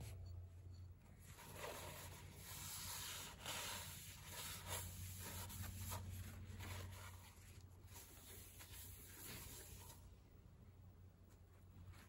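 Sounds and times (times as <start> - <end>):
paper towel scrubbing metal: 1.3 - 10.0.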